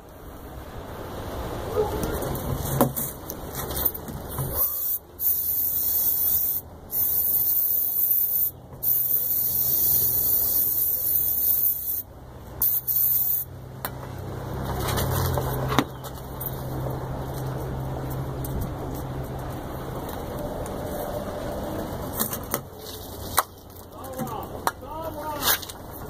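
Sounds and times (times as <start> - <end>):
aerosol can spraying: 4.6 - 13.5.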